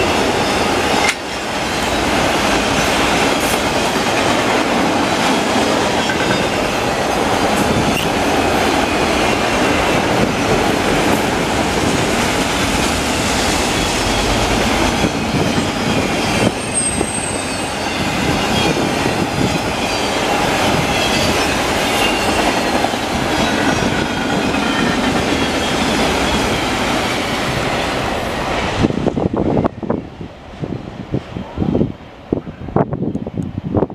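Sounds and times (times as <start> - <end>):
steel wheels rushing on rail: 0.0 - 33.9
high wheel squeal: 13.2 - 26.7.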